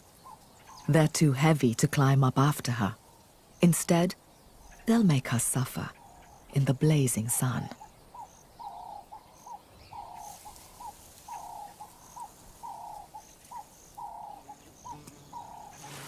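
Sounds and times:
dove cooing: 0:07.8 - 0:16.0.

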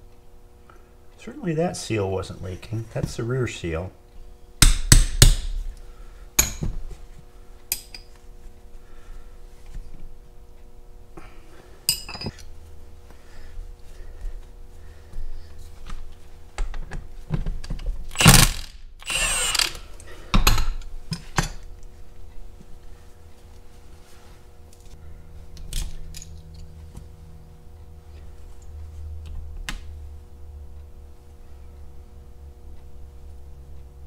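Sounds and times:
faint hum: 0:00.0 - 0:34.0
hammer striking steel punch: 0:04.6 - 0:05.6.

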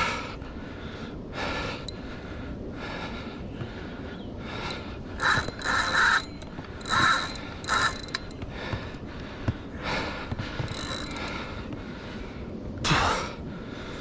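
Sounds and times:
fishing reel drag and gears: 0:05.2 - 0:08.4, 0:10.7 - 0:11.3.

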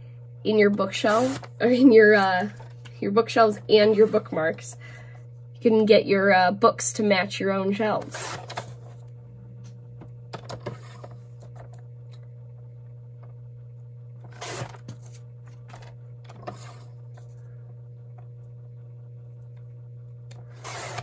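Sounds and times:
steady low hum: 0:00.0 - 0:21.0
paper trimmer blade swishes: 0:01.0 - 0:01.5, 0:20.5 - 0:21.0.

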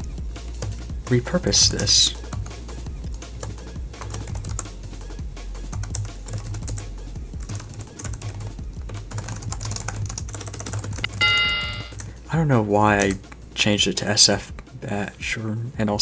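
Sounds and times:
breakcore music with bass: 0:00.0 - 0:10.2
fast typing on keyboard: 0:03.4 - 0:04.7, 0:05.7 - 0:06.8, 0:07.4 - 0:12.1.

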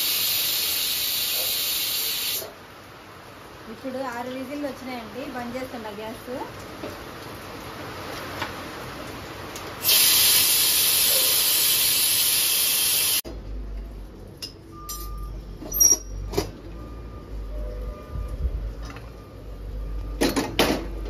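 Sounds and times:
pressure cooker steam hiss: 0:00.0 - 0:02.6, 0:09.8 - 0:13.2
metal clicks and clinks: 0:14.4 - 0:16.2.

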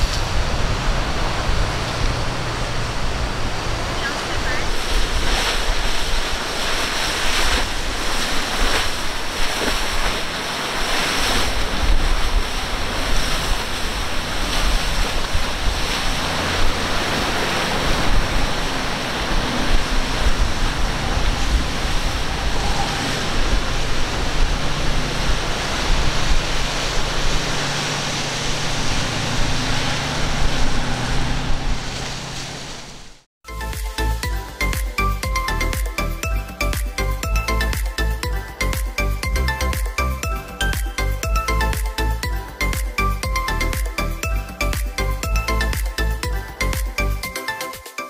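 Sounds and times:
wind buffeting microphone: 0:00.0 - 0:33.1
boat engine drone: 0:00.0 - 0:47.3
waves breaking: 0:00.0 - 0:48.0.

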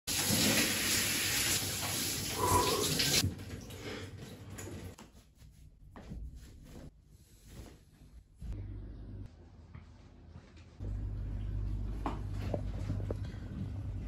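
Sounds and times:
towel and clothes rustling: 0:04.8 - 0:08.5.

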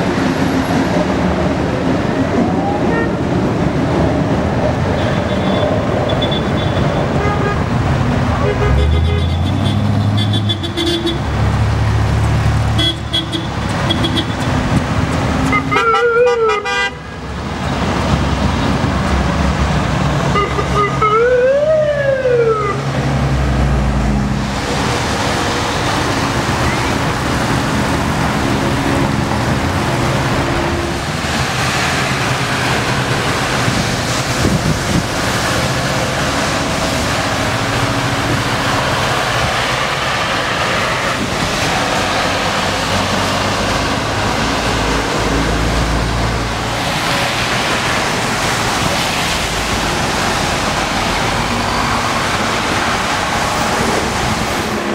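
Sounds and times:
traffic on wet road: 0:00.0 - 0:54.9
police siren: 0:02.3 - 0:03.2, 0:15.6 - 0:16.6, 0:20.4 - 0:22.9.

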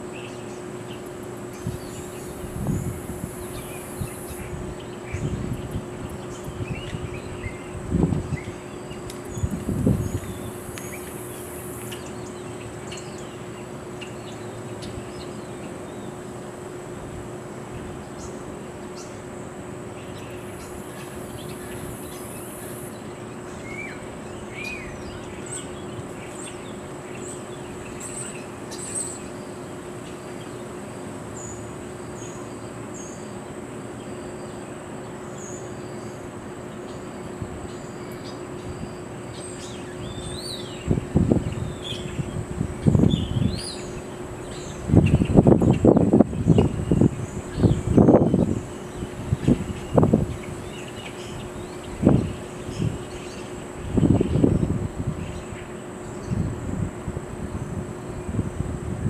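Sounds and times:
steady low hum: 0:00.0 - 0:59.0
insect buzzing: 0:01.5 - 0:04.6, 0:09.3 - 0:12.1, 0:20.3 - 0:23.0.

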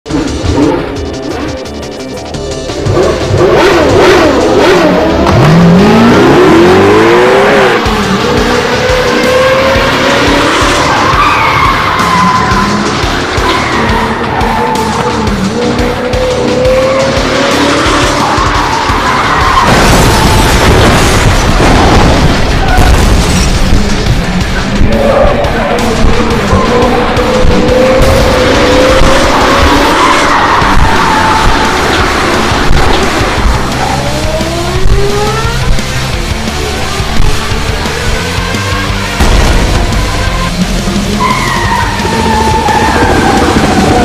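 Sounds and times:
car engine revving: 0:00.1 - 0:44.0
music: 0:00.1 - 0:44.0
tyres squealing: 0:10.3 - 0:20.6, 0:24.8 - 0:35.4, 0:39.9 - 0:44.0.

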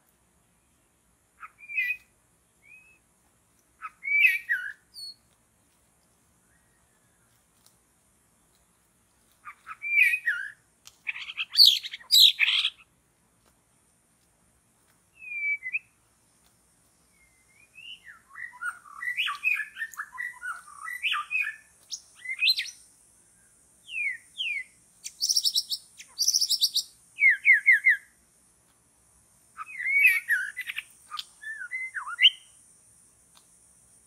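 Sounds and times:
bird singing whistled phrases: 0:01.4 - 0:03.0, 0:03.8 - 0:05.2, 0:09.5 - 0:12.8, 0:15.2 - 0:16.0, 0:17.1 - 0:22.8, 0:23.8 - 0:28.1, 0:29.6 - 0:32.5
harsh rattling bird call: 0:09.4 - 0:12.9, 0:23.9 - 0:28.1.

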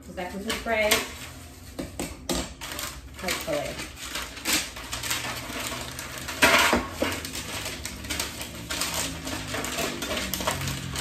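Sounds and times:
paper rustling and crinkling: 0:00.0 - 0:01.8, 0:02.4 - 0:11.0
clatter against metal pan: 0:06.4 - 0:07.3.

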